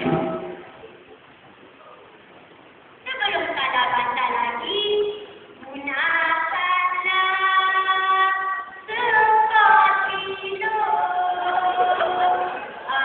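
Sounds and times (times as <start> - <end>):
boys singing in harmony: 8.9 - 13.0.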